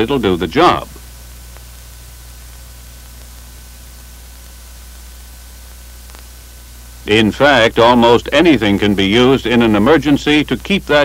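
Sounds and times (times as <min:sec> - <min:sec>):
film soundtrack hiss: 0:00.0 - 0:11.0
faint click: 0:06.0 - 0:06.3.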